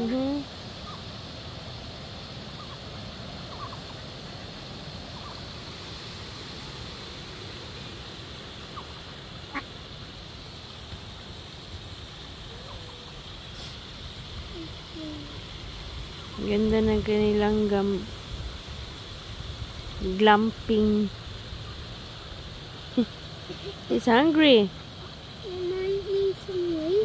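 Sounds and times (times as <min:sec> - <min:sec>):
outdoor background noise: 0:00.0 - 0:27.0
faint duck calls: 0:02.5 - 0:04.0, 0:08.7 - 0:10.0, 0:12.4 - 0:13.8.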